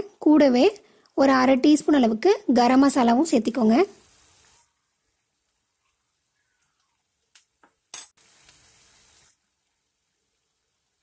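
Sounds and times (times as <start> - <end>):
faint hiss: 2.8 - 11.0.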